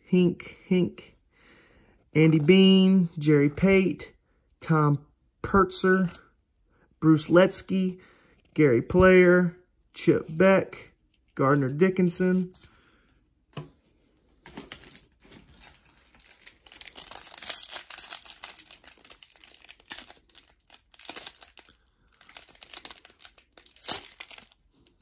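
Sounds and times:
foil wrapper crinkling and tearing: 14.6 - 25.0.

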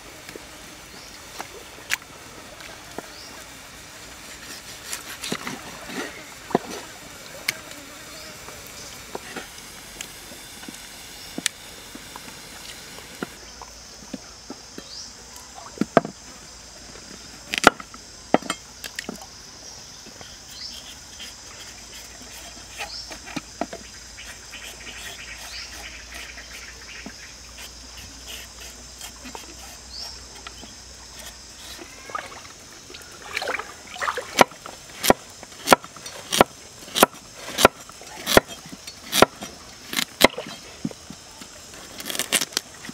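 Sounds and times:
stream trickling: 0.0 - 10.0, 28.9 - 38.1.

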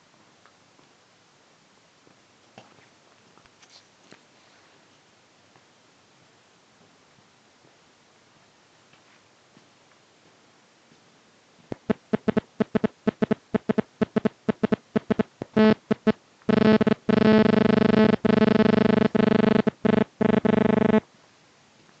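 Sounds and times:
loud buzzing beeps: 11.7 - 21.0.

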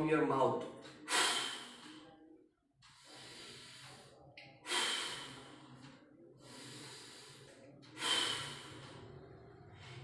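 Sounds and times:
man breathing deeply: 2.8 - 5.8, 6.4 - 9.1.

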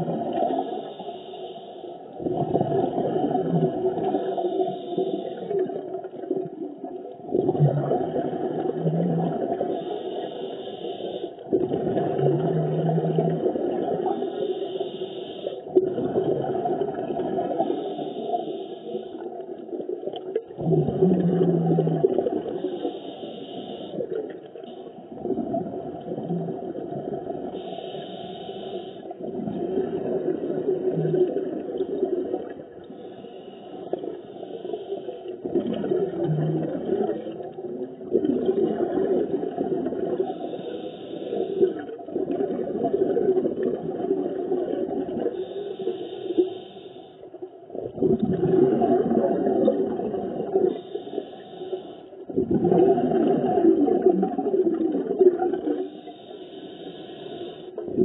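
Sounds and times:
underwater bubbles gurgling: 0.0 - 58.0
diver breathing through regulator: 0.5 - 2.0, 4.0 - 5.7, 9.6 - 11.4, 14.0 - 15.8, 17.5 - 19.3, 22.4 - 25.0, 27.5 - 29.8, 32.9 - 35.4, 40.3 - 41.9, 45.3 - 47.3, 50.7 - 52.3, 55.8 - 57.8.

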